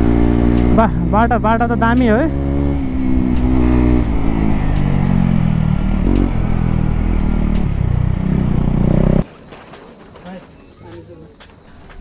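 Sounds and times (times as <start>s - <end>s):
motorcycle engine running: 0.0s - 9.2s.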